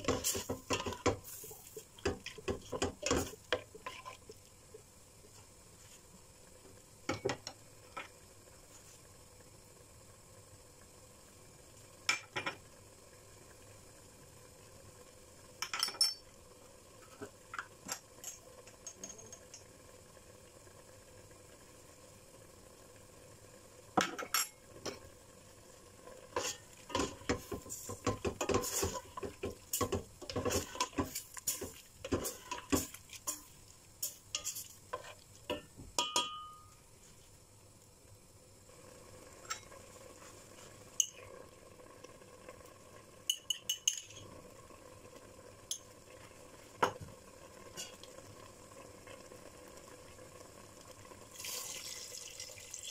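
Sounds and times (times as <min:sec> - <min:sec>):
seafood sizzling in oil: 0:00.0 - 0:52.9
spoon scraping metal pot: 0:02.3 - 0:04.2, 0:26.4 - 0:35.2.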